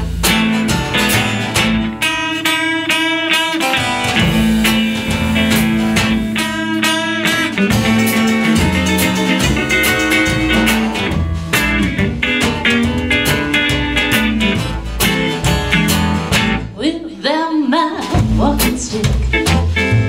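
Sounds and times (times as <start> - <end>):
band playing country-blues song: 0.0 - 20.0
bending guitar notes: 0.0 - 20.0.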